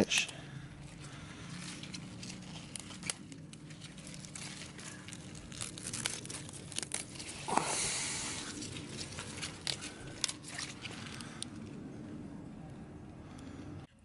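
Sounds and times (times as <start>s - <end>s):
leaves snapping and tearing: 0.9s - 11.7s.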